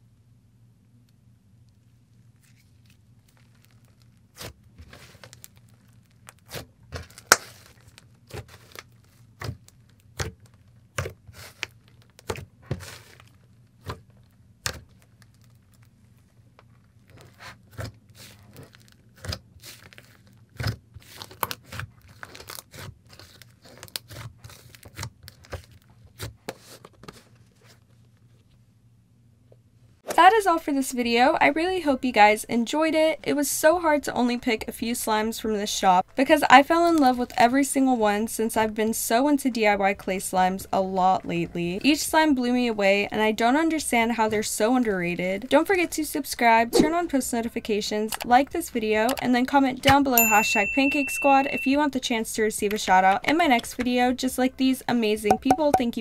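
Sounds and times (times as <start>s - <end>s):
clay slime kneaded by hand: 1.7s - 28.5s.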